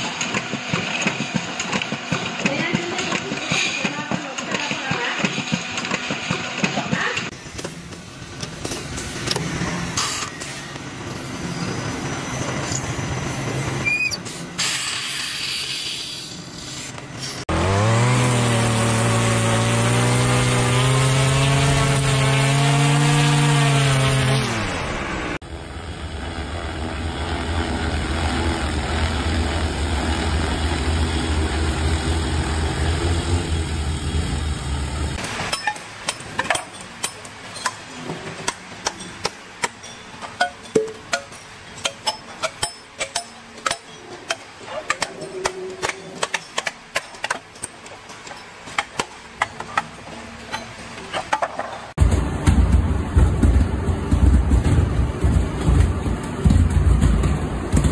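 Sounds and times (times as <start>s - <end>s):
drone rotors buzzing: 17.5s - 35.2s
machine hum rising in pitch: 23.8s - 35.2s.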